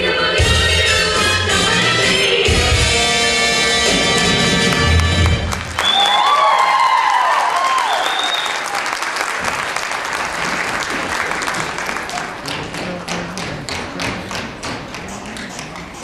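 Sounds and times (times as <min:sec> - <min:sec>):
audience applause: 0:04.6 - 0:16.0
tap shoes clicking on stage: 0:09.1 - 0:16.0.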